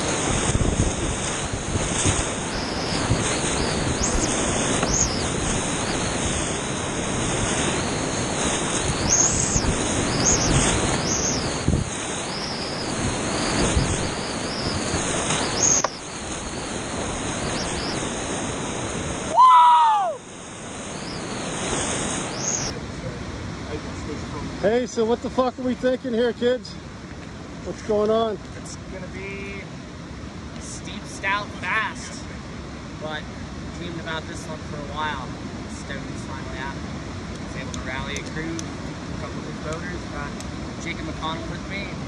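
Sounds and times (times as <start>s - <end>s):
whitewater rushing: 0.0s - 25.8s.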